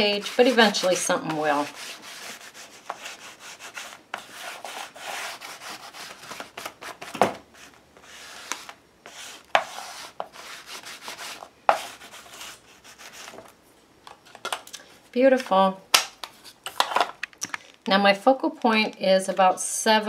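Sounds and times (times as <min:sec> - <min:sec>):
foam tool rubbing paper: 0:00.0 - 0:07.0, 0:07.6 - 0:13.4.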